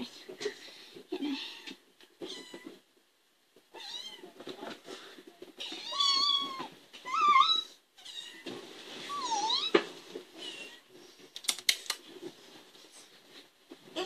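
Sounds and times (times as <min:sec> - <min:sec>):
kittens meowing: 0:05.6 - 0:08.4.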